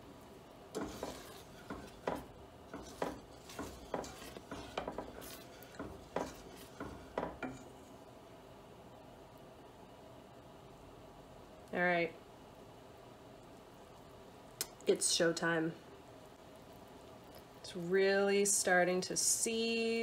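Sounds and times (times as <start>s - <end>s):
wooden spoon scraping metal pot: 0.7s - 8.0s.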